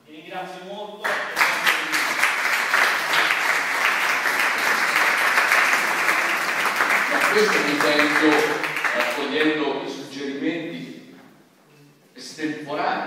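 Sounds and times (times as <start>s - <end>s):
audience applauding: 1.0s - 9.6s.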